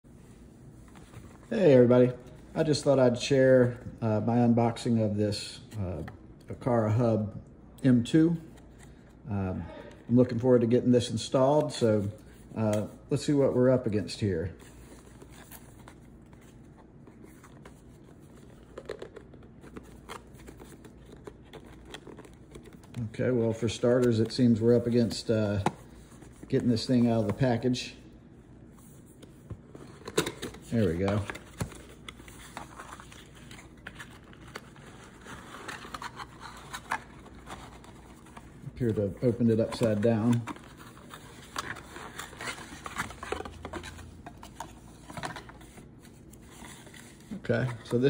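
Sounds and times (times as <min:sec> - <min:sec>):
cardboard box rustling: 0:29.6 - 0:48.0.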